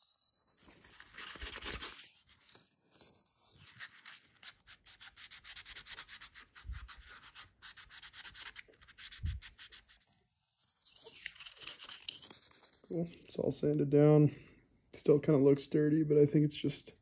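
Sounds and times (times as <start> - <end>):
sandpaper rubbing: 3.6 - 13.0.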